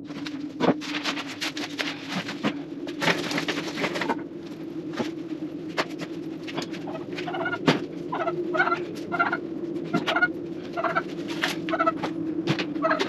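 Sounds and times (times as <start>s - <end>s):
low hum: 0.0s - 13.0s
turkey clucking: 6.5s - 13.0s.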